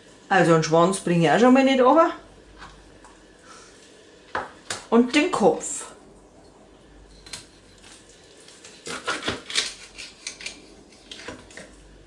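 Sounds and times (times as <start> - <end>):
knife cracking through fish bone: 8.6 - 11.3.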